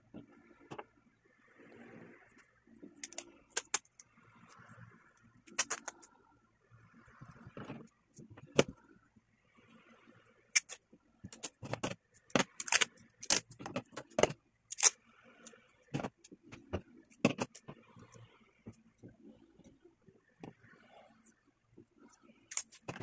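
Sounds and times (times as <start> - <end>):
tape clicking and crinkling: 5.5 - 6.1, 10.6 - 15.0, 22.5 - 23.0.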